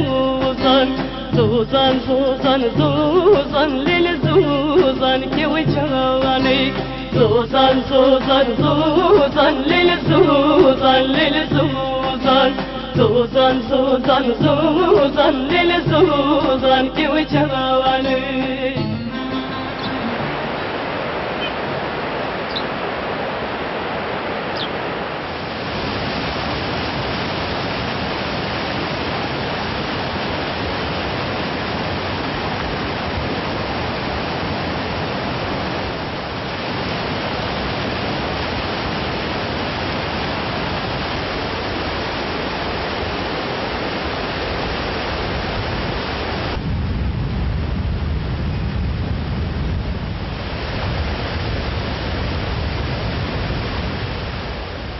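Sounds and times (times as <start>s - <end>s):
water rushing over rocks: 19.4s - 47.5s, 48.1s - 54.9s.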